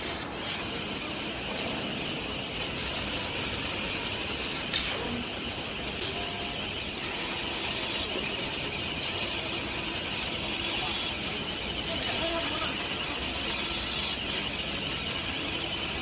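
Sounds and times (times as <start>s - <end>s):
laser cutting head hiss: 2.5s - 16.0s.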